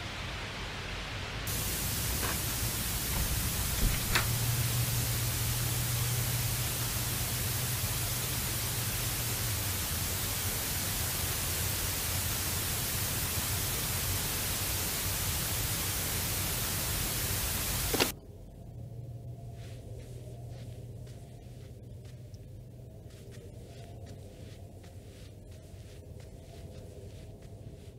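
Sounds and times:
television static hiss: 0:00.0 - 0:18.2
low hum: 0:00.0 - 0:27.9.

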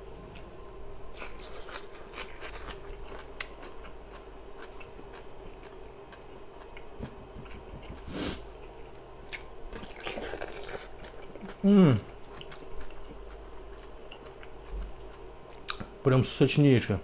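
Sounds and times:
soft chewing with mouth clicks: 0:00.3 - 0:16.0.

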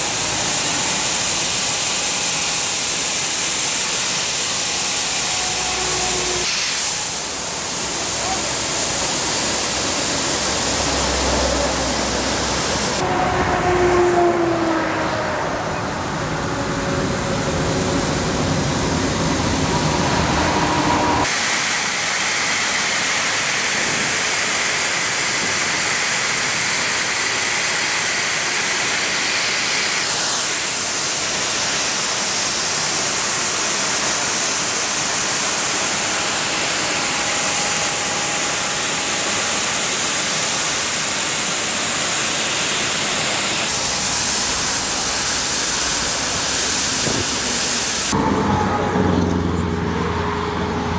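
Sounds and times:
water jet blasting loud hiss: 0:00.0 - 0:13.0, 0:17.3 - 0:48.2
engine rumble: 0:07.2 - 0:21.3, 0:42.5 - 0:50.9.

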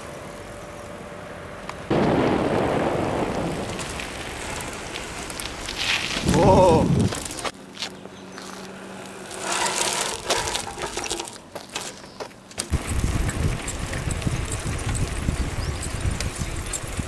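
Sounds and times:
bike tyres on asphalt: 0:00.0 - 0:17.0
wind rumble on microphone: 0:01.9 - 0:07.4, 0:12.7 - 0:17.0.

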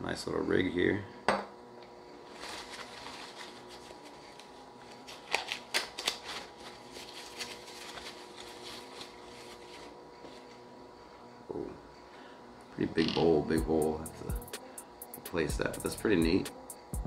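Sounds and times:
packing wrap rustling: 0:02.2 - 0:10.6.

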